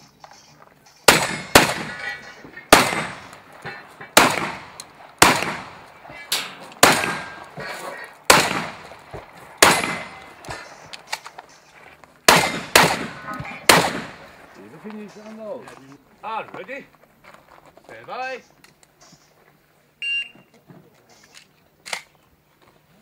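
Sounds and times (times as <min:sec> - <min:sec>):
shotgun shots: 0:01.0 - 0:11.2, 0:12.2 - 0:14.5.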